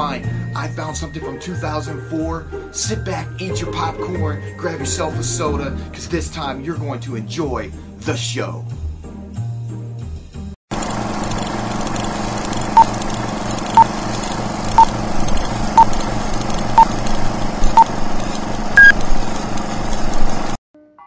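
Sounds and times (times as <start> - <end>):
film projector whirr: 10.7 - 20.6.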